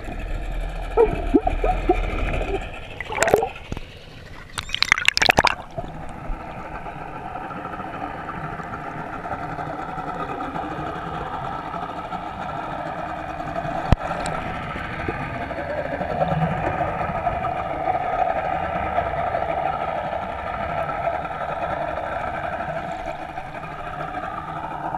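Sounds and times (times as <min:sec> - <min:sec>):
muffled boat engine underwater: 0:00.0 - 0:24.9
water splashing: 0:00.9 - 0:03.8, 0:04.4 - 0:06.1.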